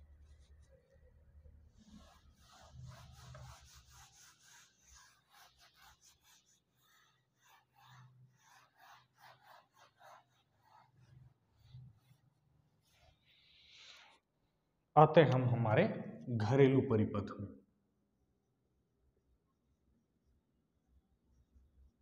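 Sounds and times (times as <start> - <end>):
duster rubbing a whiteboard: 1.7 - 14.2.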